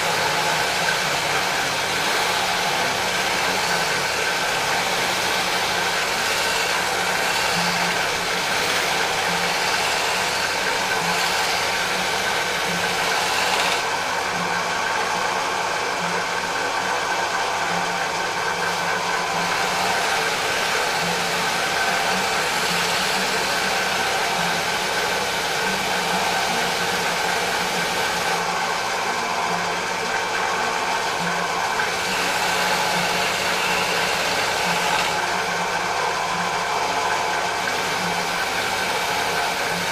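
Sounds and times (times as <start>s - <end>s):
drill press motor hum: 0.0s - 39.9s.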